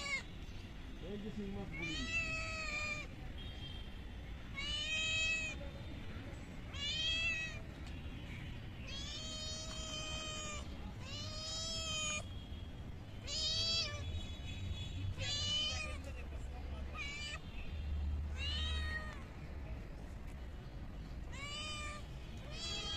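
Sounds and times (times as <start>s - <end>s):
kitten meowing: 1.7s - 3.1s, 4.6s - 5.6s, 6.7s - 7.6s, 8.9s - 12.2s, 13.2s - 14.0s, 15.2s - 16.0s, 16.9s - 17.4s, 18.3s - 19.2s, 21.3s - 22.9s.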